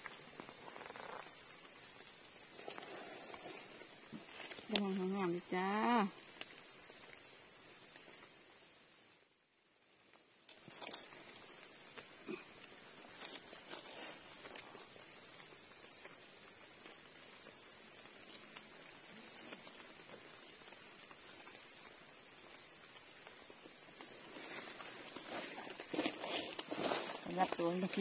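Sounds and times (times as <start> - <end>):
leaf litter rustling: 0.0 - 5.3, 10.5 - 16.8, 17.5 - 28.0
insect drone: 0.0 - 28.0.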